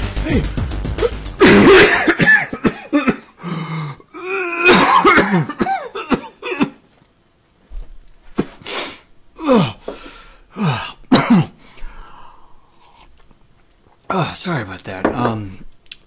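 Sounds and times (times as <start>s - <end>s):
man coughing: 1.0s - 3.4s, 4.5s - 6.8s, 10.6s - 11.6s.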